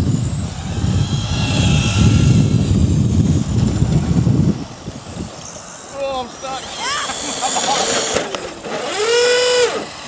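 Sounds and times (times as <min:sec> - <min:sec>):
wind buffeting microphone: 0:00.0 - 0:07.3
high whine of model buggy motors: 0:00.0 - 0:10.0.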